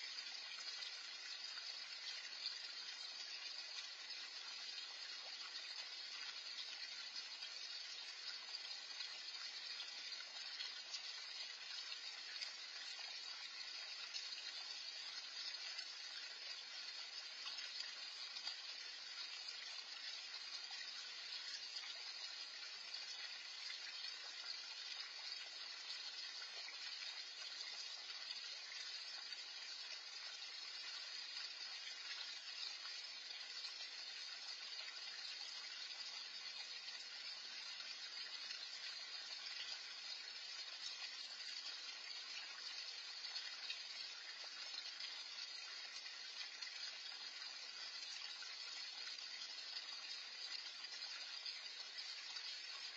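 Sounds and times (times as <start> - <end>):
fountain splashing into pond: 0.0 - 52.9.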